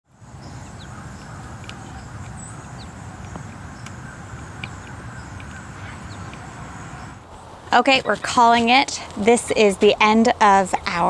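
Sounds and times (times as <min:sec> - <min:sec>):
steady low rumble: 0:00.1 - 0:10.5
high bird chirps: 0:00.3 - 0:07.2.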